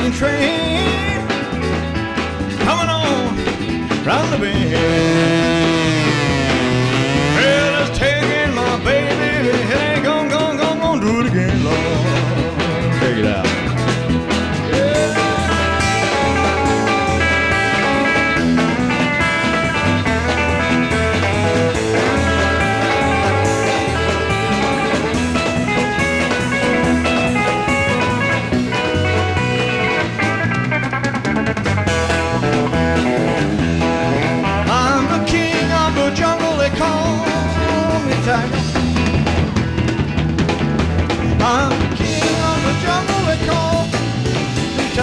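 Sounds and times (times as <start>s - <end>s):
electric guitar bending notes: 0.0s - 45.0s
rock band playing: 0.0s - 45.0s.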